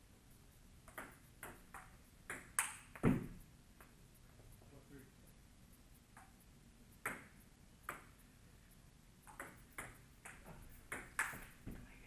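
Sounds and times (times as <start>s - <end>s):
ping-pong ball clicking: 0.8s - 4.0s, 7.0s - 8.2s, 9.2s - 11.6s.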